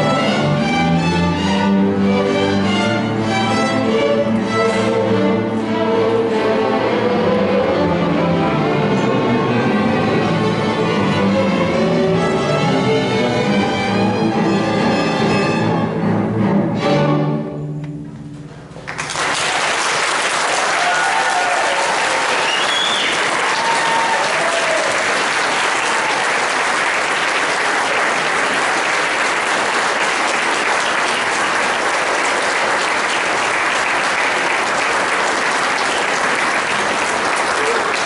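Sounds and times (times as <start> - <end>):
audience applause: 18.8 - 38.0.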